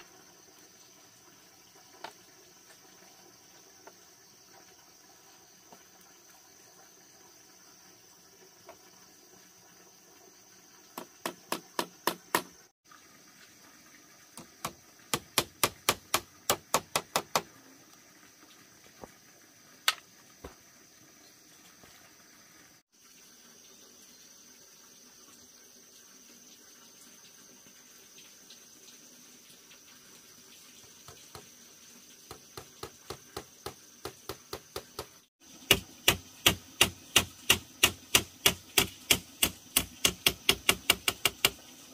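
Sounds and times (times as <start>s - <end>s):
hammer tapping on bamboo frame: 11.0s - 12.5s, 14.6s - 17.5s, 32.6s - 41.6s.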